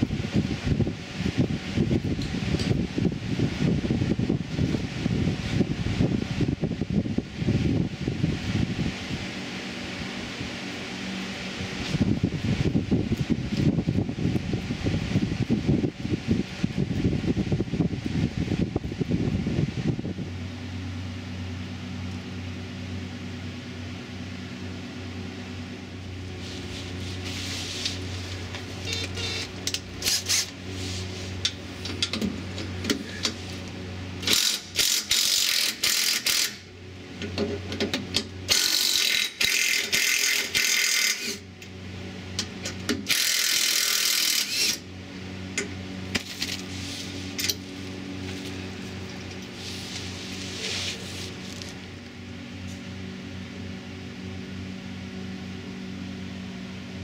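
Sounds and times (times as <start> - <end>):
steady low hum: 0.0 - 57.0
cordless power tool running: 25.1 - 36.8, 38.2 - 52.8.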